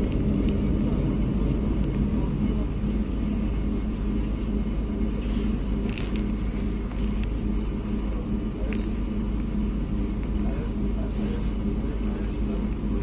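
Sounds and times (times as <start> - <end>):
motor hum: 0.0 - 13.0
train running gear rumble: 0.0 - 13.0.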